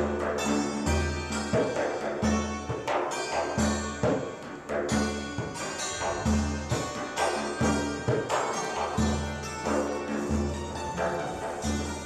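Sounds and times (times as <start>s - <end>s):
hand-struck frame drum: 0.0s - 12.0s
plucked zither notes: 0.0s - 12.0s.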